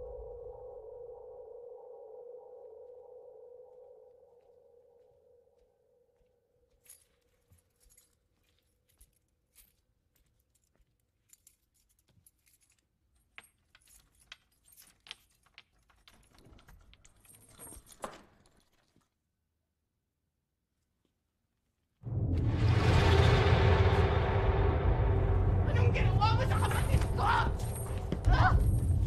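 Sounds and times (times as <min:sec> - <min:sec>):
metallic clinking and jingling: 0:06.7 - 0:19.0, 0:26.6 - 0:29.0.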